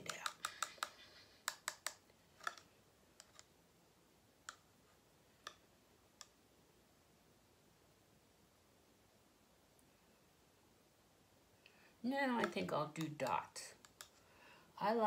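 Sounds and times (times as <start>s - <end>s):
stick clicking against plastic cup: 0.0s - 3.5s, 12.4s - 13.2s, 13.8s - 14.2s.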